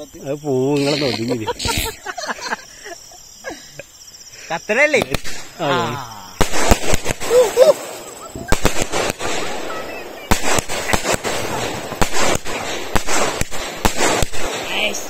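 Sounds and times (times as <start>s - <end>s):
firework bangs: 4.9s - 5.6s, 6.3s - 15.0s
firework crackling: 4.9s - 5.6s, 6.3s - 15.0s.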